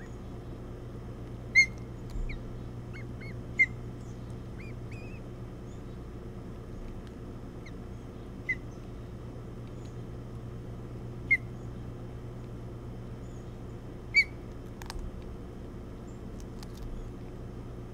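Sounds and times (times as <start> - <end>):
low hum: 0.0 - 17.9
osprey chirps: 1.5 - 6.0.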